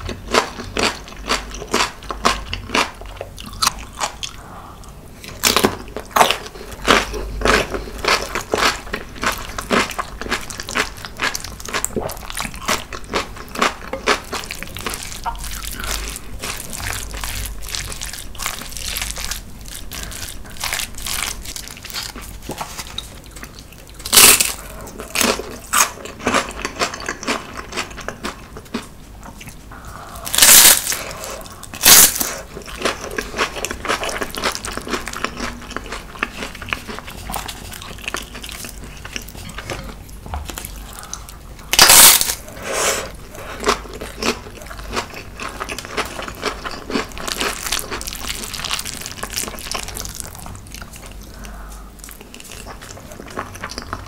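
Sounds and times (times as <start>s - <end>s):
wet chewing: 0.4s - 54.0s
crunching bites into chips: 24.0s - 26.0s, 30.2s - 38.8s, 40.5s - 42.4s.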